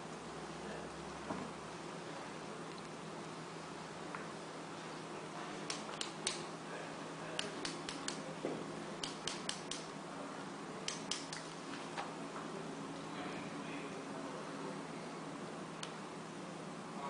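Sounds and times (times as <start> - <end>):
finger flicking plastic syringe: 7.4 - 8.2, 9.0 - 9.9, 10.8 - 11.5.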